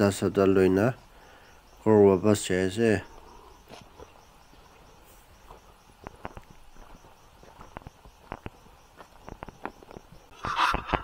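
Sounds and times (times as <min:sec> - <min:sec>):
insect chirping: 0:00.0 - 0:11.0
footsteps on dirt path: 0:02.5 - 0:11.0.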